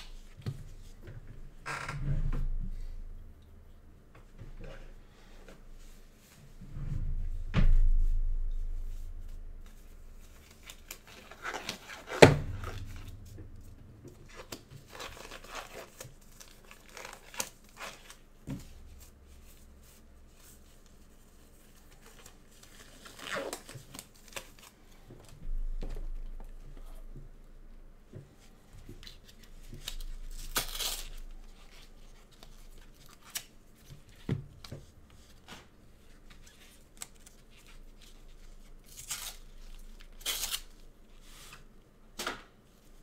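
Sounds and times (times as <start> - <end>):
packaging torn and crinkled: 10.4 - 13.3, 14.3 - 18.3, 29.8 - 33.6, 36.4 - 40.8.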